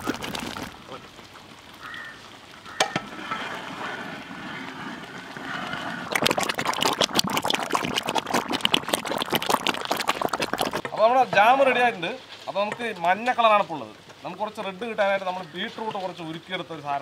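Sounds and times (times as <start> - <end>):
pops and crackles: 0.0 - 1.7, 6.1 - 11.0
thick jam boiling: 0.0 - 14.3.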